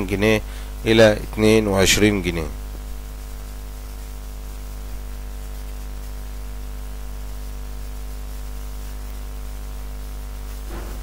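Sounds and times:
electrical hum and buzz: 0.0 - 11.0
hiss: 2.8 - 11.0.

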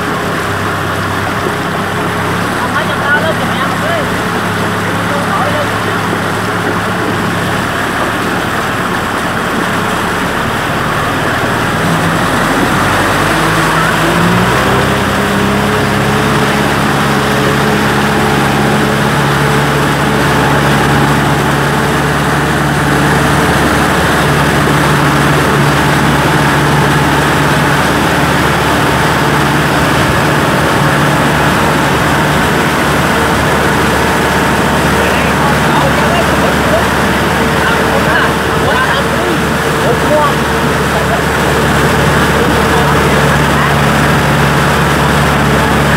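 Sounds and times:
tractor diesel engine running: 0.0 - 45.9.

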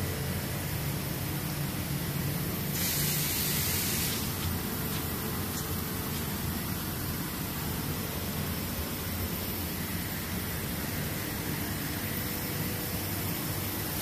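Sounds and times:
low machinery hum: 0.0 - 14.0
loud hiss: 2.7 - 4.6.

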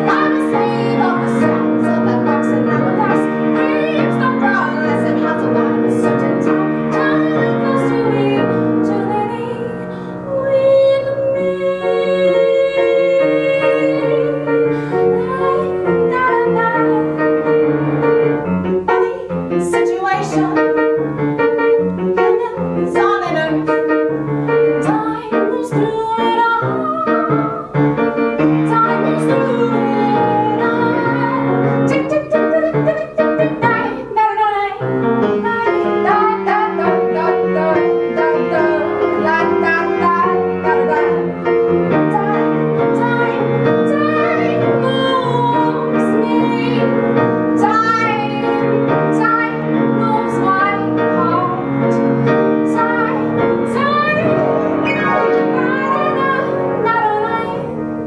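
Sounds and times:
woman singing: 0.0 - 18.0, 18.8 - 57.8
piano chords: 0.0 - 58.0.

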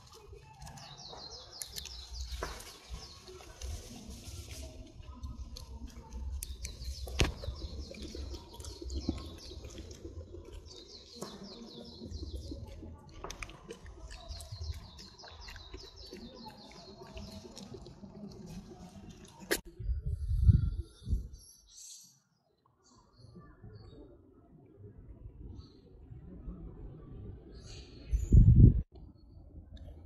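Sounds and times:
small birds trilling: 0.0 - 3.7, 5.3 - 18.3.

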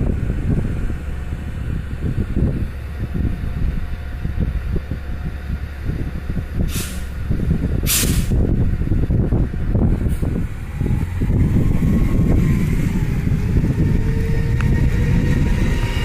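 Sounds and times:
heavy vehicle rumble: 0.0 - 16.0
air brakes hissing: 6.6 - 7.2, 7.8 - 8.4.

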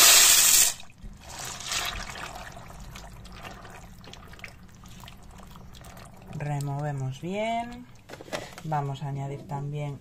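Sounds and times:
stew sloshing and bubbling: 0.8 - 9.0
spatula stirring in pot: 1.2 - 8.6.

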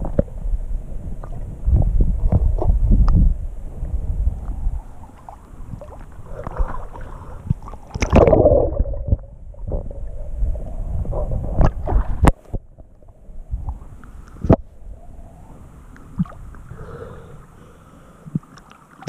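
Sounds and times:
low rumble: 0.0 - 7.6, 8.2 - 16.8
water sloshing and gurgling: 1.0 - 19.0
water splash: 5.1 - 9.3, 11.6 - 12.4.

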